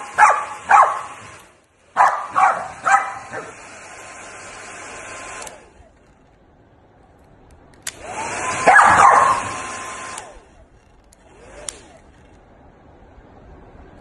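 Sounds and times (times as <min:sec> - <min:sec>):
dog barking and yowling: 0:00.0 - 0:01.3, 0:02.0 - 0:03.6, 0:08.6 - 0:09.6
hair dryer blowing: 0:00.0 - 0:05.9, 0:07.9 - 0:10.5, 0:11.3 - 0:12.0
hair dryer switch click: 0:07.8 - 0:08.2.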